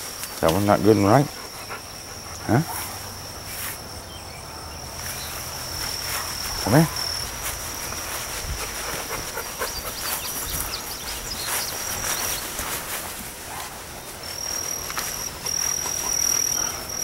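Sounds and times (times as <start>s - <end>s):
insects calling: 0.0s - 17.0s
rustling leaves and stems: 0.0s - 17.0s.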